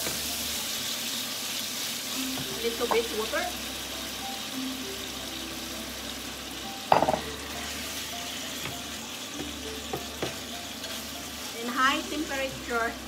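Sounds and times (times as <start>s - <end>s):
beef sizzling in a frying pan: 0.0s - 13.0s
knock against a pan: 6.9s - 7.3s.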